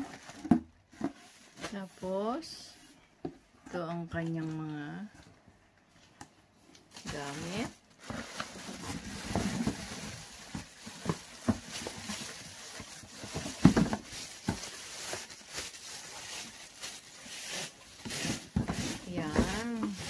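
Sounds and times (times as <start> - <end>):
plastic packaging crinkling: 6.8 - 20.0.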